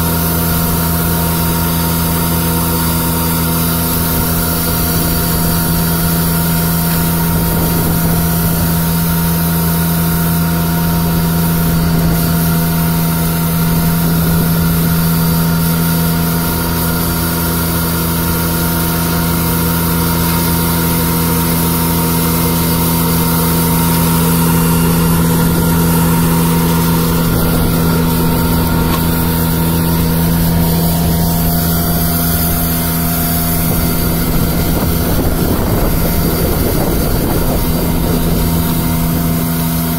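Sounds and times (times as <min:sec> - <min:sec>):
street sweeper engine hum: 0:00.0 - 0:39.9.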